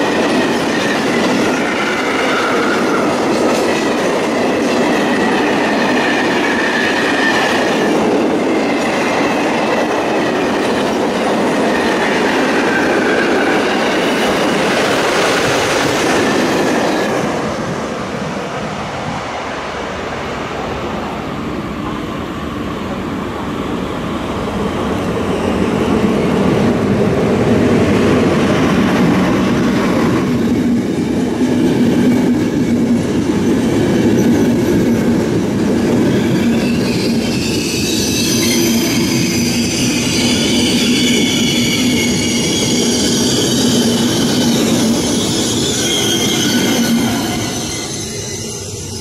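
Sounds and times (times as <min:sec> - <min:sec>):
train rolling past: 0:00.0 - 0:49.0
high-pitched brake squeal: 0:00.6 - 0:03.2, 0:36.1 - 0:49.0.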